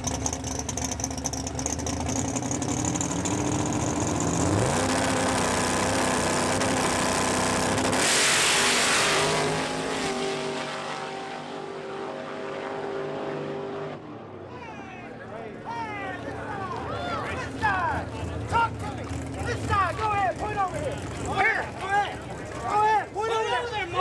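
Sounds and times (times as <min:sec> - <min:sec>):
truck engines revving: 0:00.0 - 0:24.0
trucks launching blast: 0:03.4 - 0:14.1.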